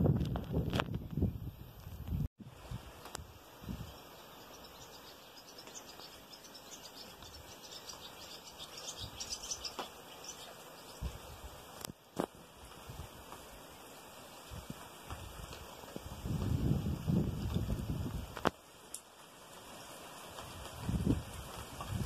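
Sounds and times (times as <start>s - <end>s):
steady rain falling: 2.4s - 22.0s
birds chirping: 3.4s - 11.8s.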